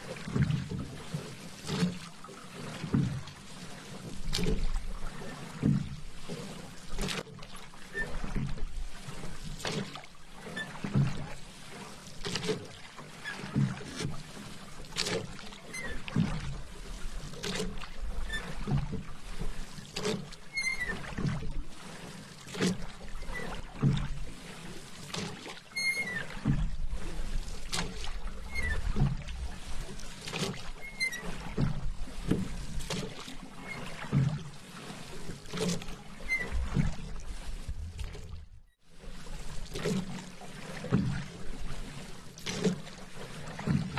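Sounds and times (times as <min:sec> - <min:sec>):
paddle strokes in water: 0:00.0 - 0:43.9.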